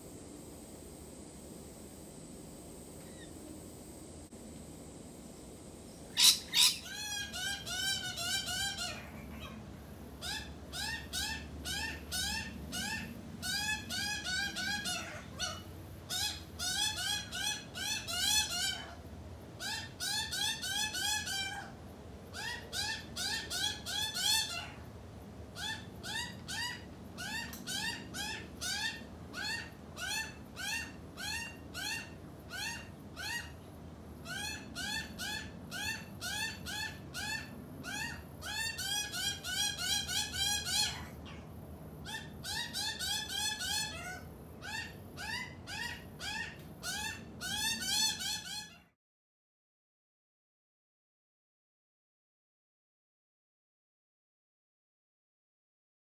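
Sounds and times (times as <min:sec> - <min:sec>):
young magpie begging calls: 0:06.1 - 0:09.6, 0:10.2 - 0:18.9, 0:25.6 - 0:33.6, 0:34.2 - 0:41.4, 0:42.0 - 0:48.8.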